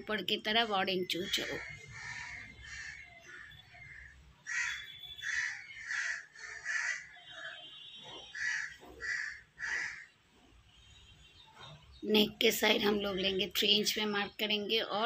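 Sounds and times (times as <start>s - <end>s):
crow cawing: 1.4s - 7.5s, 8.3s - 10.1s.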